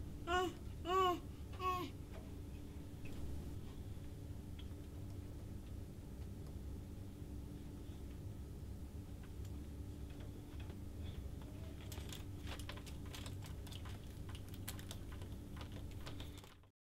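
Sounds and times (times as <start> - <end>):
bench equipment hum: 0.0 - 16.6
plastic probes clicking and rattling: 11.4 - 16.7.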